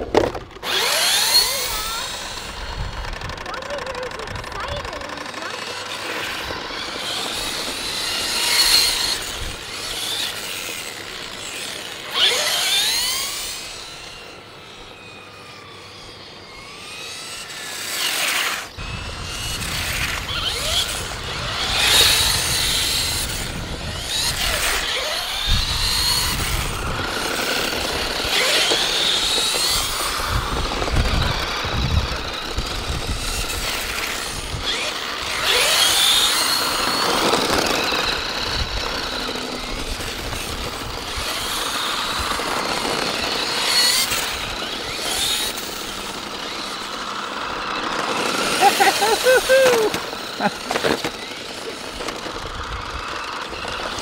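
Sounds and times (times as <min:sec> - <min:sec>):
electric motor whine of toy cars: 0:00.0 - 0:54.0
wind rumbling on microphone: 0:18.8 - 0:28.2, 0:29.2 - 0:34.8.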